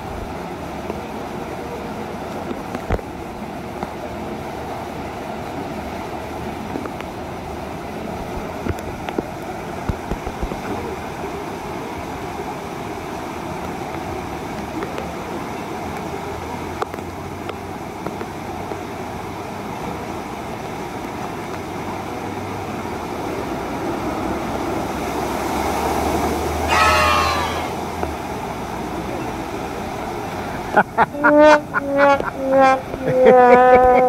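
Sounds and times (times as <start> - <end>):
water spraying hiss: 0.0 - 33.6
bucket of water cascading: 0.0 - 34.0.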